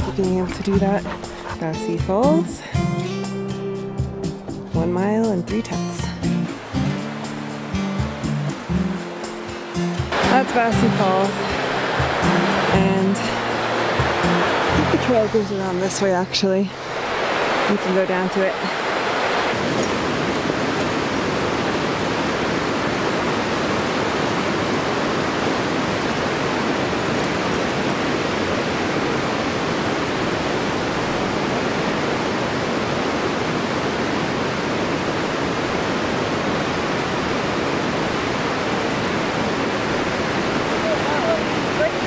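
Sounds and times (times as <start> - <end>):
waterfall rushing: 0.0 - 4.7, 5.5 - 42.0.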